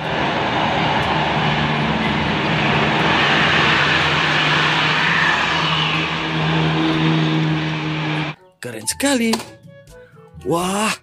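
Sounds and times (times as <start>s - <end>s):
bus engine drone: 0.0s - 8.4s
road and tyre noise: 0.0s - 8.4s.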